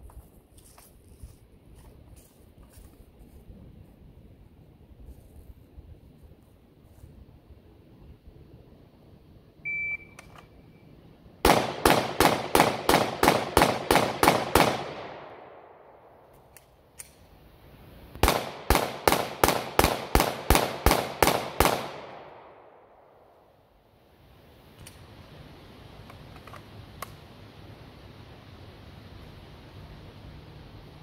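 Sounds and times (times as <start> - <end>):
shot timer beep: 9.7 - 10.2
pistol shots: 11.4 - 15.6, 18.2 - 22.7.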